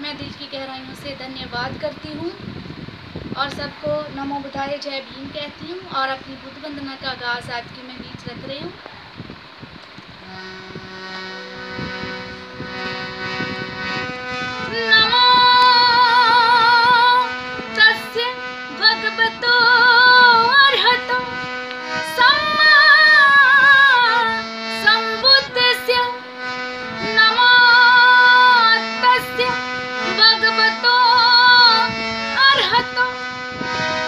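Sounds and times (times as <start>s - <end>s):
woman singing devotional song: 0.0s - 2.6s, 3.3s - 8.8s, 14.6s - 33.4s
instrumental backing: 0.0s - 34.0s.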